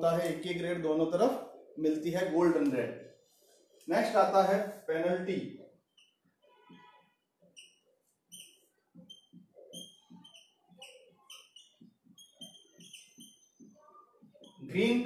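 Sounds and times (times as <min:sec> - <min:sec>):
marker pen squeaking on whiteboard: 0:05.5 - 0:15.0.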